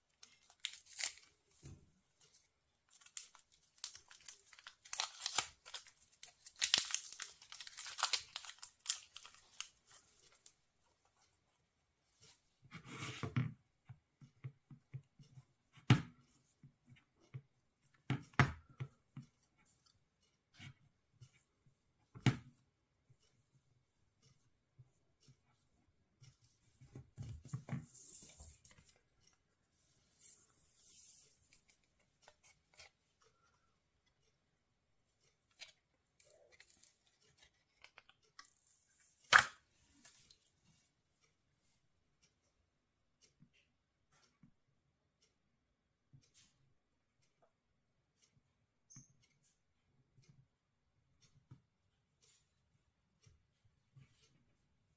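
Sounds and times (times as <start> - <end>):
paper rustling: 0.1 - 10.6.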